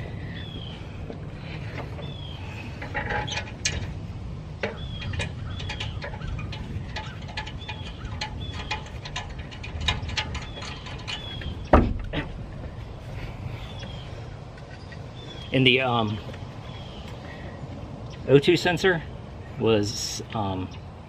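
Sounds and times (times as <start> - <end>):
bird chirping: 0.0 - 3.8, 4.6 - 21.0
heavy thump: 11.7 - 12.7.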